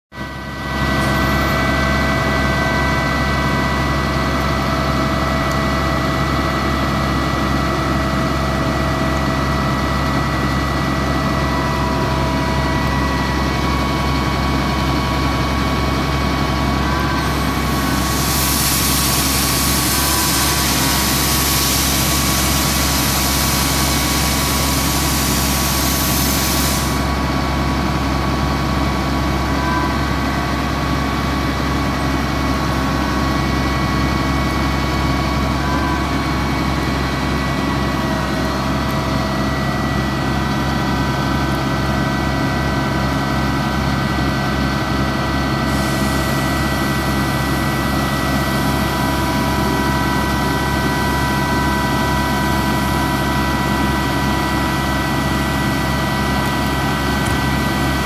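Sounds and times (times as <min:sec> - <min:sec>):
diesel truck engine idling: 0:00.2 - 0:58.0
loud hiss: 0:17.4 - 0:27.1.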